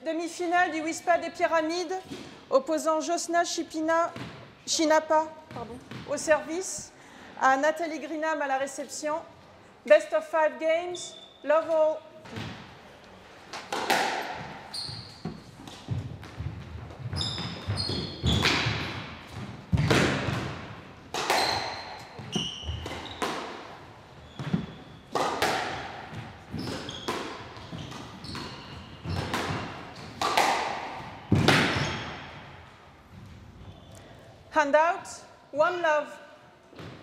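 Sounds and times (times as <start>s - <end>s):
shoes squeaking on court floor: 10.8s - 20.6s, 21.2s - 34.2s
squash ball hits echoing: 13.5s - 32.7s.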